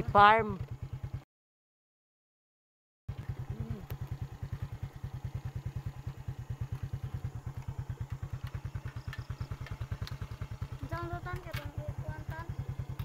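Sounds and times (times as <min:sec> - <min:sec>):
motorcycle engine running: 0:00.0 - 0:01.2, 0:03.1 - 0:13.0.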